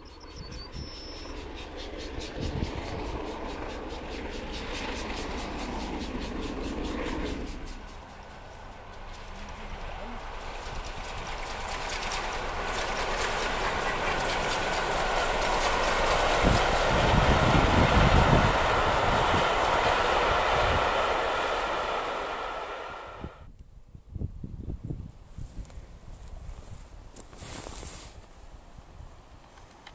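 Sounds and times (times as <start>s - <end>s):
steam train passing: 0.7s - 23.5s.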